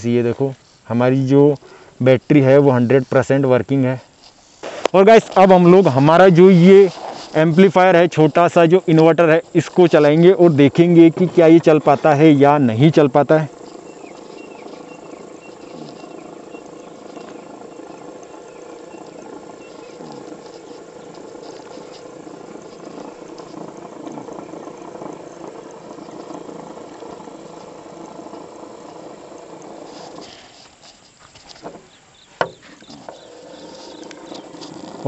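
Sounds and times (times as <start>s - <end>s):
small electric motor running: 13.5s - 30.6s.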